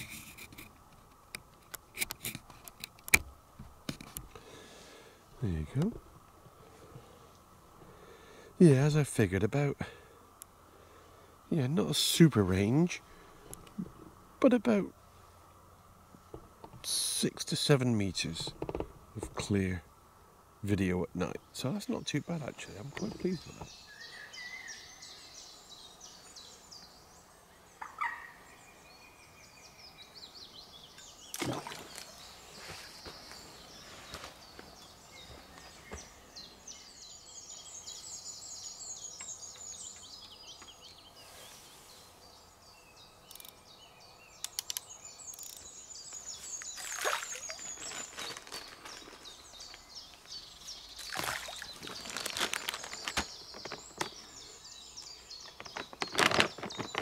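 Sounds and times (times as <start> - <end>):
songbirds singing: 0.0 - 57.0
rustling knocks: 18.4 - 19.5.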